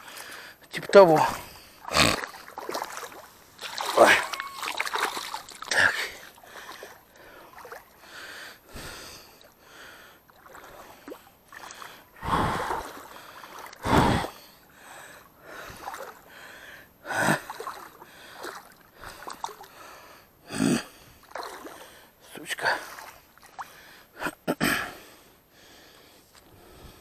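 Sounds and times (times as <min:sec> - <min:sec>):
man breathing hard: 0:05.8 - 0:10.2, 0:11.7 - 0:18.4, 0:23.7 - 0:27.0.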